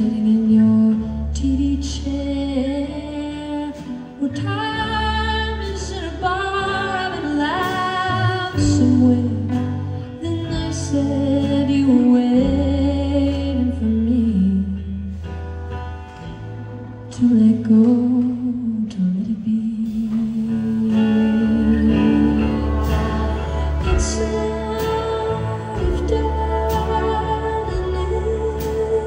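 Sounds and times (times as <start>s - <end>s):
woman singing: 0.0s - 15.2s, 17.0s - 29.0s
acoustic guitar: 0.0s - 29.0s
bowed violin melody: 20.5s - 29.0s.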